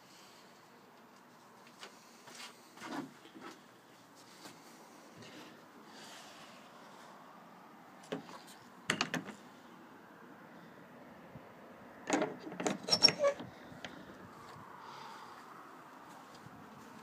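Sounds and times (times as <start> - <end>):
sharp clicks and knocks: 8.9 - 9.4, 12.1 - 13.0.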